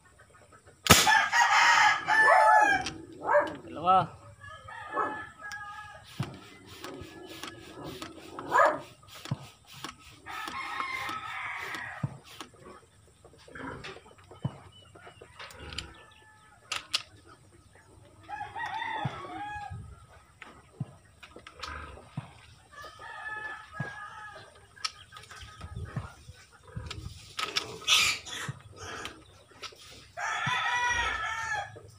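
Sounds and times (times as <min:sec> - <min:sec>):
rooster crowing: 0:01.1 - 0:03.4, 0:04.4 - 0:08.0, 0:10.3 - 0:12.1, 0:18.3 - 0:19.8, 0:30.2 - 0:31.7.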